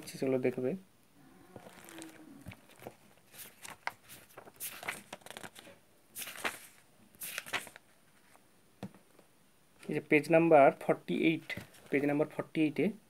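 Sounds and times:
paper pages turning: 1.6 - 8.4.

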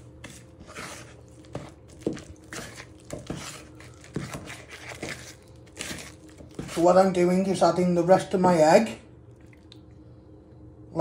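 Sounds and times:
spoon scraping batter in bowl: 0.0 - 7.2.

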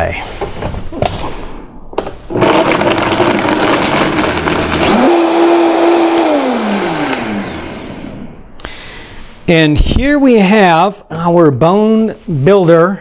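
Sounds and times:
blender motor whining: 2.3 - 8.4.

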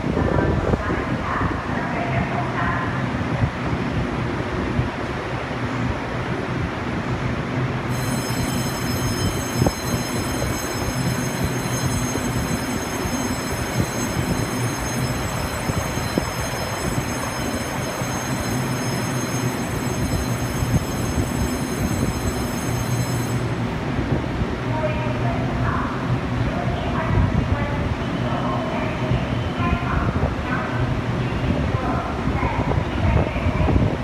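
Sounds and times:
train rumbling: 0.0 - 34.0
high electric whine: 7.9 - 23.8.

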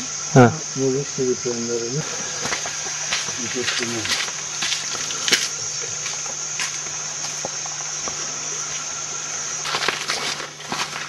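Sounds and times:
high-pitched insect drone: 0.0 - 11.0
rustling and brushing: 2.0 - 9.0, 9.6 - 11.0.

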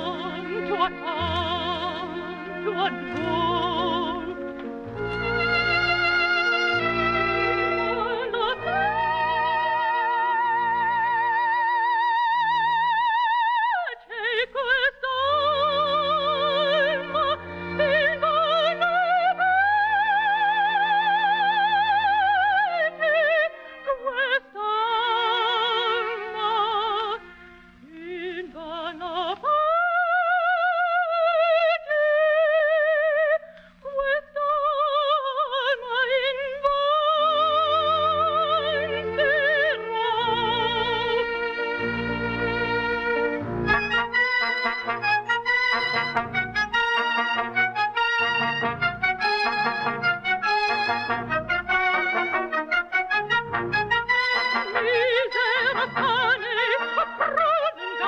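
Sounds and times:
orchestral accompaniment: 0.0 - 11.2, 37.7 - 58.0
soprano singing with vibrato: 0.0 - 27.2, 27.8 - 58.0.

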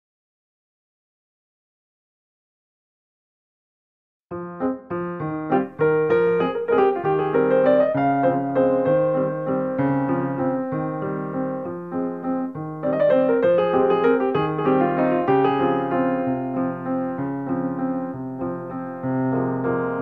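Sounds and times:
piano piece: 4.3 - 20.0.

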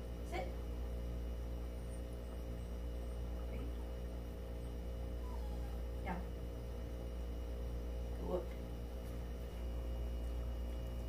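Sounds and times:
low electrical mains hum: 0.0 - 11.0.

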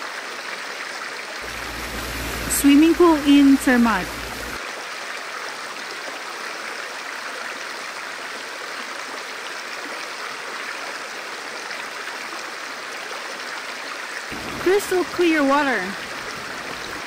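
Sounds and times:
river water rushing over rocks: 1.4 - 4.8, 14.3 - 17.0.

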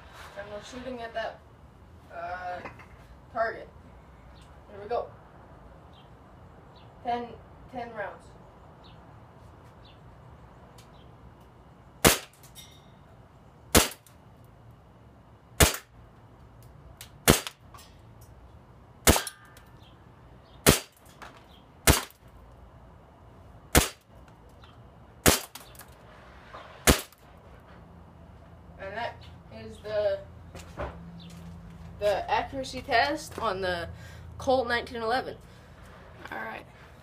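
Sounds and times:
airsoft pistol shots: 12.0 - 12.4, 13.7 - 14.1, 15.6 - 15.9, 17.2 - 17.6, 19.0 - 19.5, 20.6 - 21.0, 21.8 - 22.2, 23.7 - 24.0, 25.2 - 25.7, 26.8 - 27.2.

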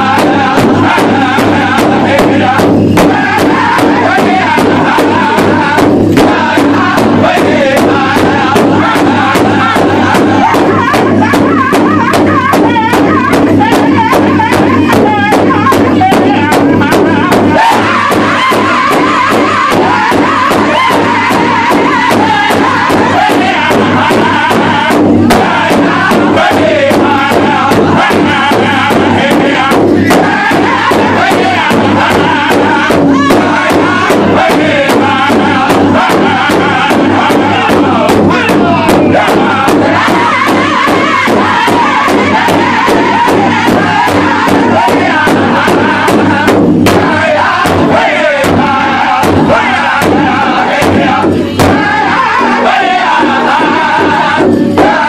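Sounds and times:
large drum beating fast: 0.0 - 55.0
men singing loudly in group: 0.0 - 55.0.

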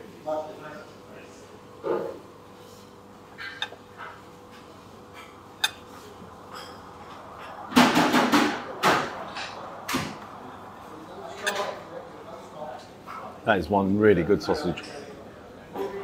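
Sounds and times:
cutlery clinking on a plate: 3.4 - 6.8, 11.4 - 11.8.

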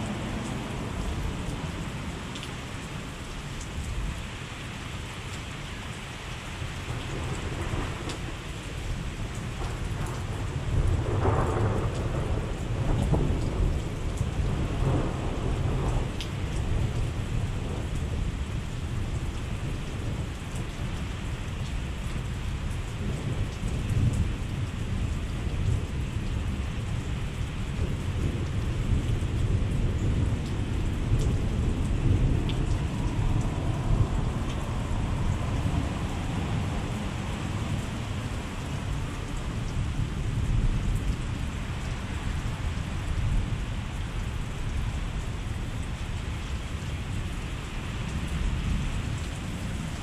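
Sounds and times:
steady rain hiss: 0.0 - 50.0
low thunder rumble: 6.9 - 19.3, 23.0 - 43.8.

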